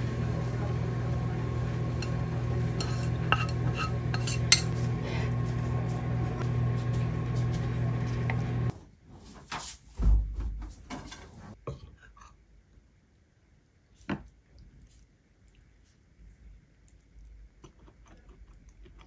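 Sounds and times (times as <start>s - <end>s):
steady kitchen hum: 0.0s - 19.0s
dishes and tableware clattering: 2.0s - 4.8s.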